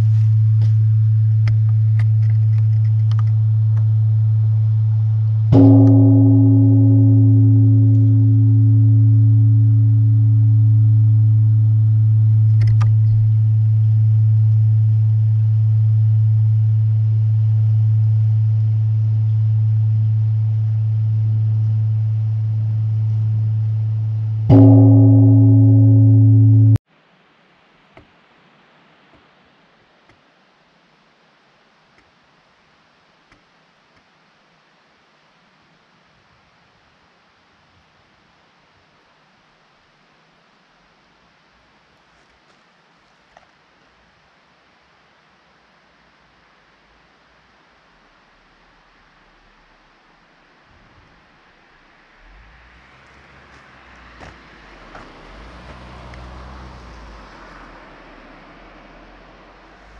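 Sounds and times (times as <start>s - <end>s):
deep steady hum: 0.0s - 26.8s
large bronze bell struck: 3.3s - 26.8s.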